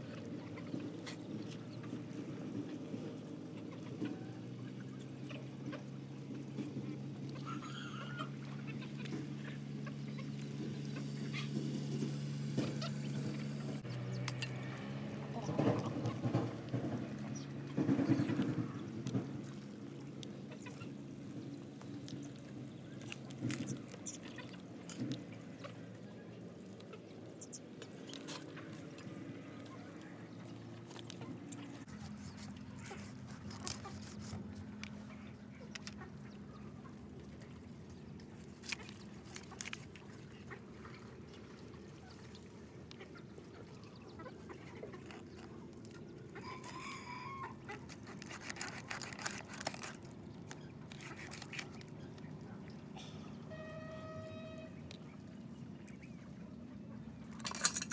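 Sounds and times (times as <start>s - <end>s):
chickens clucking: 6.6s - 19.4s, 42.8s - 49.5s
rooster crowing: 46.4s - 47.6s.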